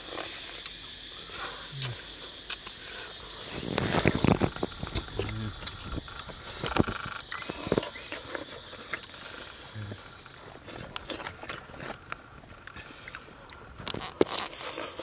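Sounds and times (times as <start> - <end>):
mouth clicks: 1.7 - 2.8, 3.6 - 10.1
person chewing and lip smacking: 1.8 - 2.8, 3.7 - 5.8, 6.7 - 9.2.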